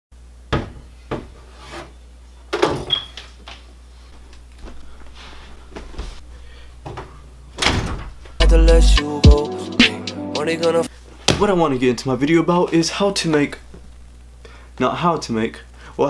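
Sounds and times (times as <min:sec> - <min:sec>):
door opening with squeak: 0:02.7 - 0:03.3
shuffling: 0:03.6 - 0:07.2.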